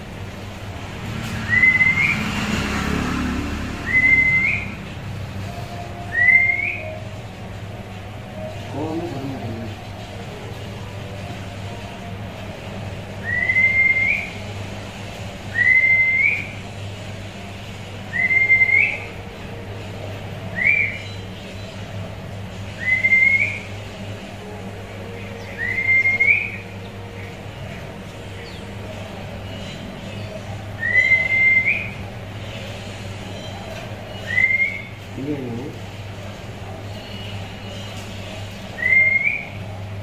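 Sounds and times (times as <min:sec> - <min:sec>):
whistled note rising: 0:01.4 - 0:02.3, 0:03.8 - 0:04.8.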